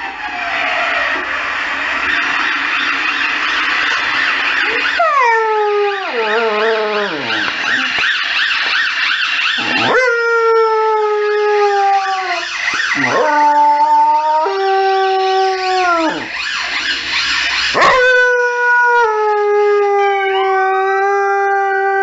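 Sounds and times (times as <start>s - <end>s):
siren warbling: 0.0s - 22.0s
dog howling: 4.7s - 8.0s, 9.6s - 16.3s, 17.8s - 22.0s.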